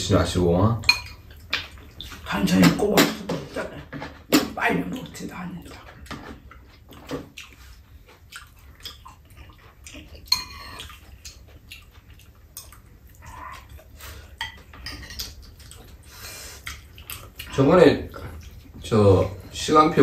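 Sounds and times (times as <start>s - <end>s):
utensils clinking on ceramic bowls: 0.8s - 1.2s, 10.2s - 11.0s, 14.4s - 15.4s.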